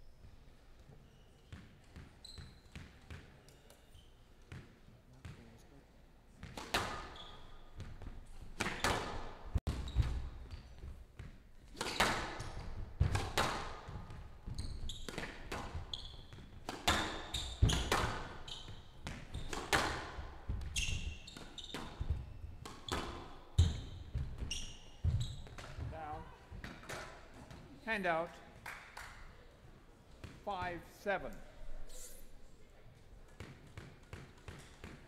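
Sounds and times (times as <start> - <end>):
shoes squeaking on court floor: 0.1 - 5.4, 6.4 - 27.6.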